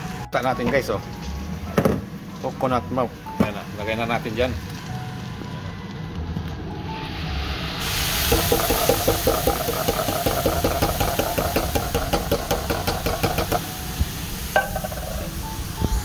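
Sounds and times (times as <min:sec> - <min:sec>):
liquid sizzling in hot pan: 0:06.8 - 0:16.0.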